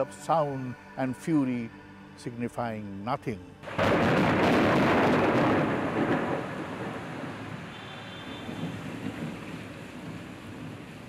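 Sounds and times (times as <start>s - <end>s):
steady rain: 3.7s - 11.0s
thunder rolling: 3.7s - 11.0s.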